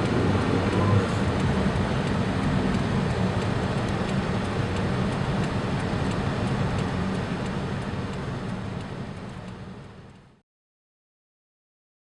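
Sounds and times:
low rumbling: 0.0 - 7.7
heavy rain downpour: 0.0 - 9.4.

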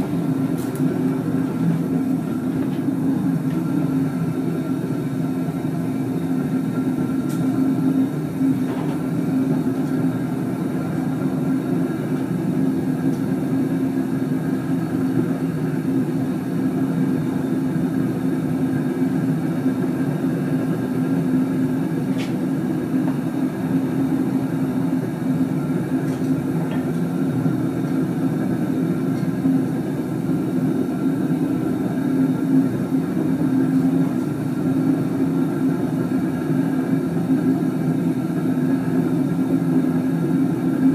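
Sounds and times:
gas burner rumbling: 0.0 - 40.9.

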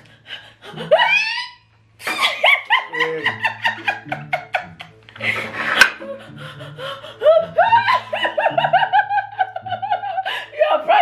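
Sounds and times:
woman laughing: 0.4 - 5.4, 6.0 - 11.0
breathy gasping: 5.2 - 7.6.

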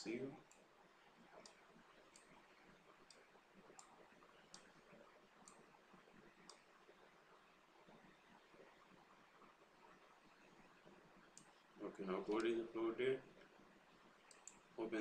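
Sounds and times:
faint sharp clicks: 1.3 - 2.4, 3.0 - 4.8, 12.3 - 12.6, 14.2 - 14.7.

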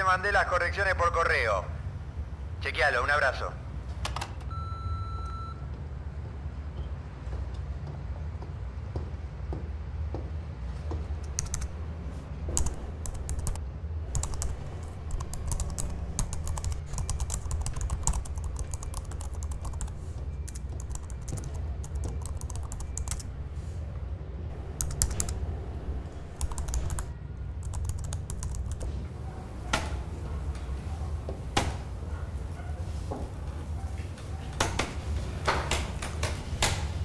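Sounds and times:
steady low hum: 10.9 - 37.0
laptop keyboard typing: 11.1 - 23.4, 24.5 - 30.5.

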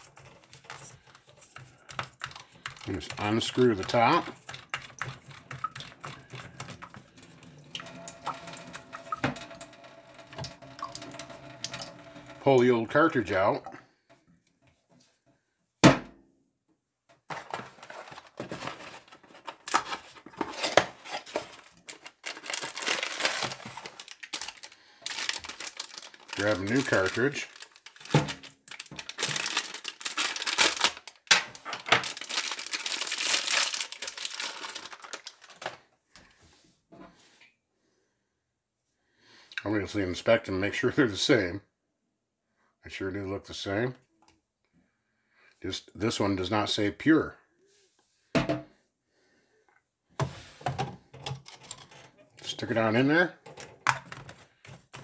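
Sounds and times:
water trickling into steel sink: 7.1 - 12.4
foil wrapping crackling: 18.0 - 35.7.

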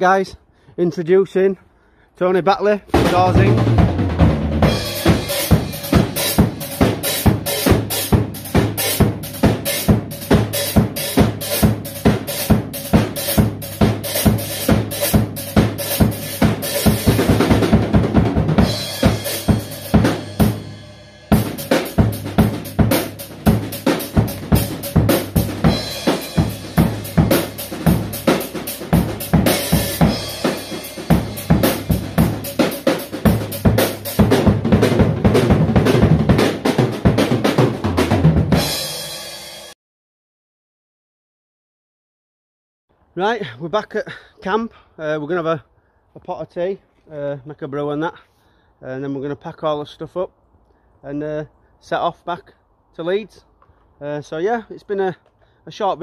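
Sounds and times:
drum kit fast beat: 2.9 - 39.8.

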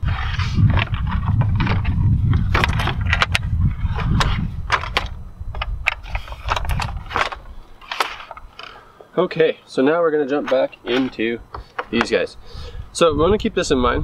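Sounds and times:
low rumble: 0.0 - 7.6
plastic and metal parts clicking: 2.5 - 8.8, 10.4 - 12.2.

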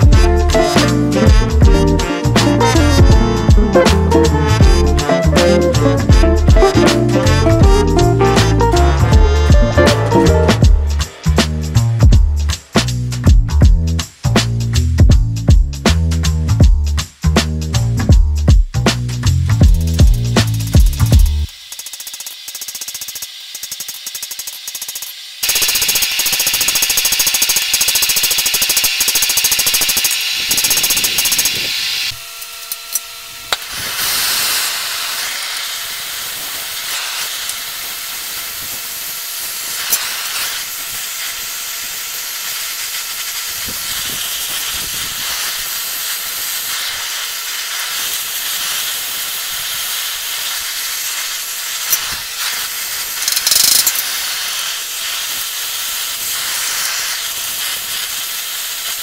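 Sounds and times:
torch flame hissing: 33.4 - 59.0.

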